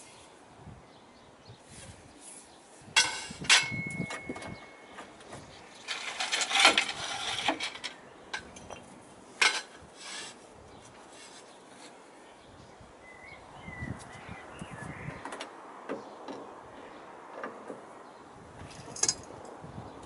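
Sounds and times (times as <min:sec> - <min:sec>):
steel tube clanking on metal: 0:03.0 - 0:05.0, 0:05.7 - 0:10.4
steel tube scraping metal: 0:05.8 - 0:08.0, 0:09.4 - 0:10.4.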